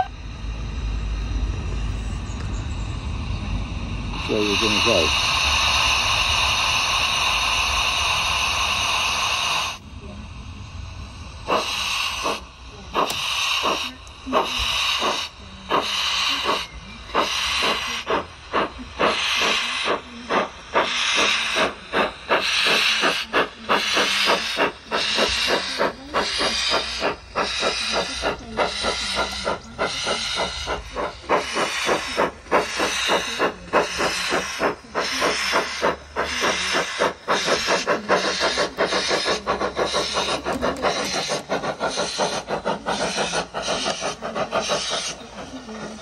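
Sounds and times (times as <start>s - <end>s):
steam locomotive exhaust chuffs: 0.0s - 46.0s
hiss of steam: 3.0s - 46.0s.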